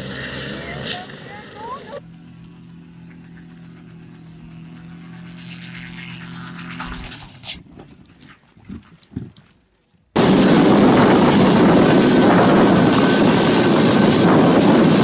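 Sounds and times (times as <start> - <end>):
helicopter engine and rotor drone: 1.1 - 7.4, 10.2 - 15.0
rotor blades striking ground: 2.0 - 9.0, 10.2 - 15.0.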